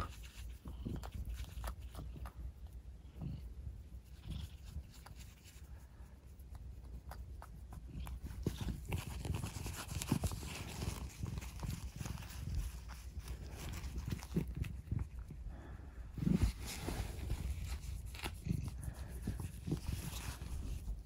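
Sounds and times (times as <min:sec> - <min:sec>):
kitten murmuring: 0:00.0 - 0:21.0
rustling of fur and bedding: 0:07.1 - 0:21.0.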